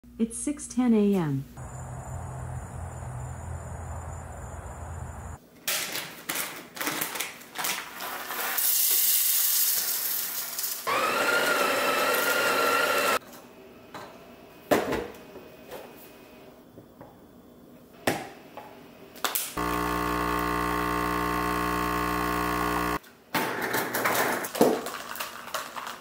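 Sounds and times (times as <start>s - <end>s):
steady low hum: 1.6s - 5.4s, 19.6s - 23.0s
grinder grinding coffee beans: 7.7s - 13.2s, 19.6s - 23.0s.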